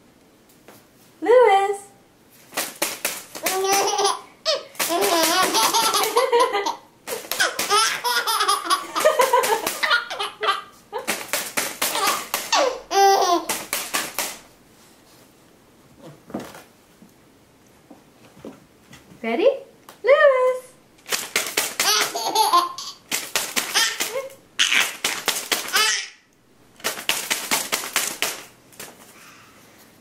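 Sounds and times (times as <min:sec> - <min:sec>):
baby laughing: 0:03.4 - 0:11.2, 0:11.8 - 0:13.7, 0:21.8 - 0:25.0, 0:25.6 - 0:26.2.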